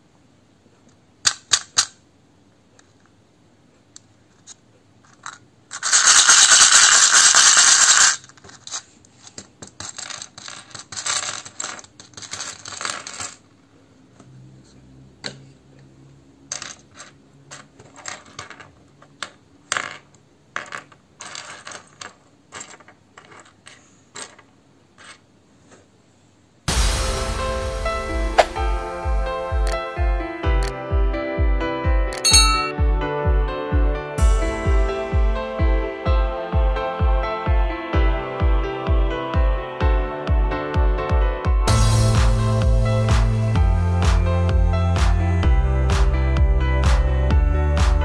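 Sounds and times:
plastic pieces clattering on table: 4.4 - 13.5, 16.5 - 25.2
plastic parts rattling in cup: 5.0 - 13.4, 19.7 - 24.4.

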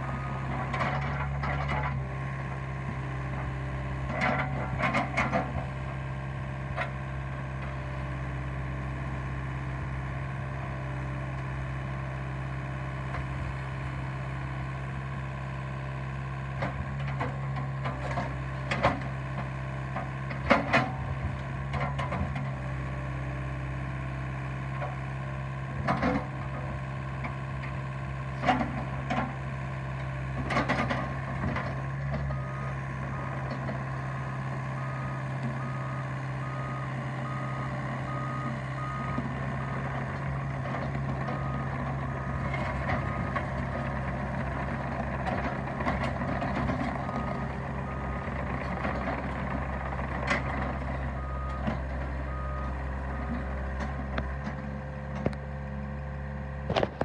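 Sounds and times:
excavator diesel engine: 0.0 - 57.0
gravel crunching and clattering: 56.6 - 57.0.

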